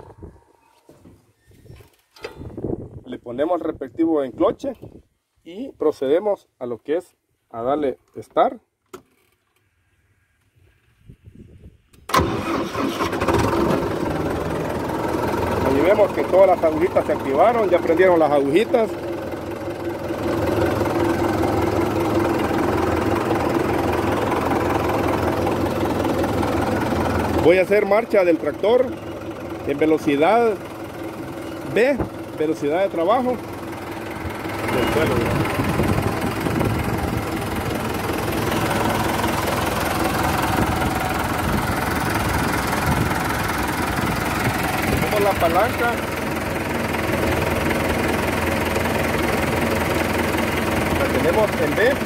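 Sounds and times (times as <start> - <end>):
tractor diesel engine idling: 12.1 - 52.0.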